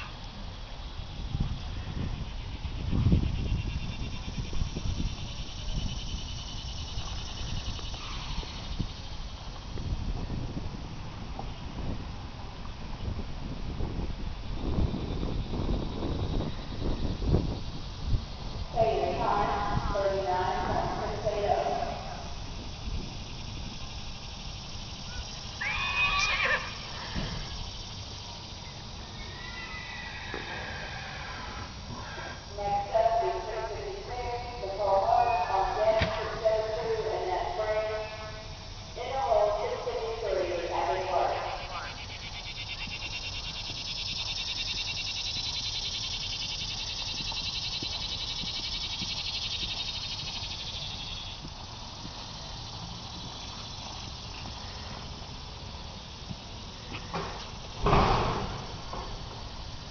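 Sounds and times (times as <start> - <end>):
insects chorus pulsing: 0.0 - 59.9
horse whinnying: 25.6 - 27.6, 29.2 - 32.4.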